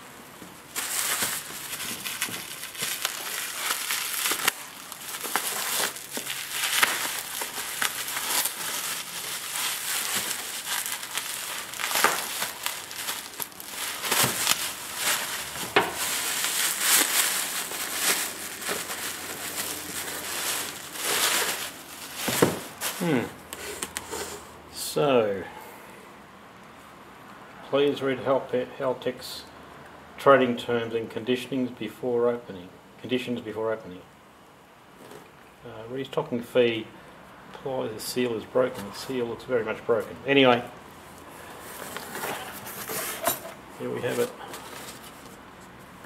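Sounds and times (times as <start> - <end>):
bubble wrap crinkling: 0.0 - 24.4, 40.6 - 46.0.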